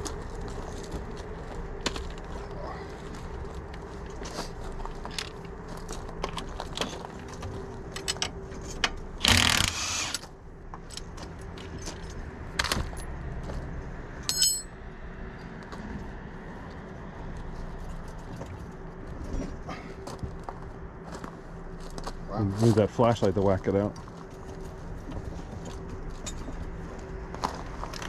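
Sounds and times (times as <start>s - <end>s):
metal tools clinking: 14.2s - 14.8s
ringing metal clink: 14.2s - 14.8s.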